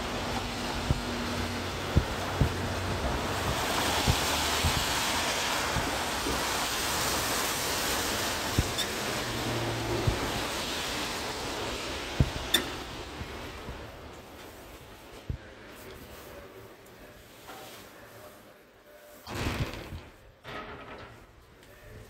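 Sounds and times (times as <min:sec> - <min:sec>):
tyres on wet pavement: 0:00.0 - 0:17.0
dull thumps: 0:00.2 - 0:06.8, 0:08.4 - 0:10.6, 0:12.1 - 0:13.9.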